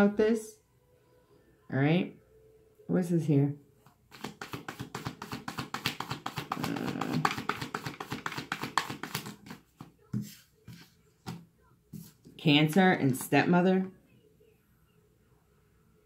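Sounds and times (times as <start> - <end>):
taps on cards: 4.1 - 10.3
cards being shuffled: 4.1 - 11.4.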